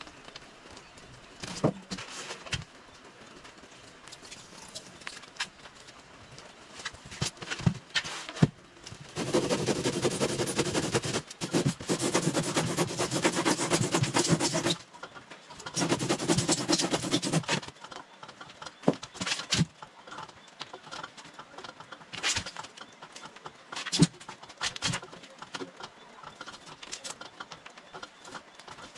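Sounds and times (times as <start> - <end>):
handsaw cutting foam: 9.2 - 14.8, 15.7 - 17.6.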